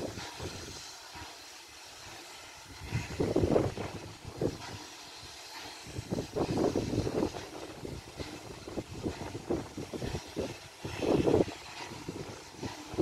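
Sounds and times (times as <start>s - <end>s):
distant steam locomotive puffing: 0.0s - 13.0s
steady steam hiss: 0.0s - 13.0s
wind buffeting microphone: 2.7s - 4.9s, 5.6s - 13.0s.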